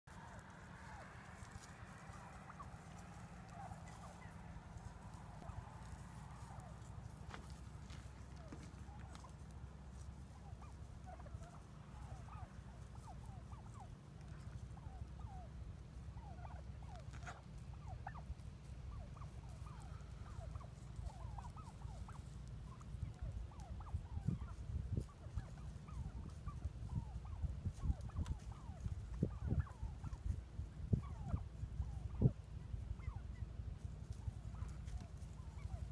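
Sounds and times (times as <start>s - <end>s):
rustling: 0.1s - 30.4s
low steady rumble: 0.1s - 35.9s
turkeys clucking: 0.1s - 35.9s.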